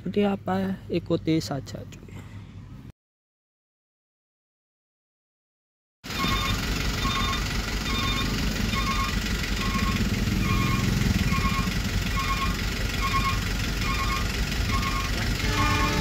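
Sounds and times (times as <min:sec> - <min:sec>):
level crossing warning bell: 0:06.1 - 0:16.0
low engine rumble: 0:06.1 - 0:16.0.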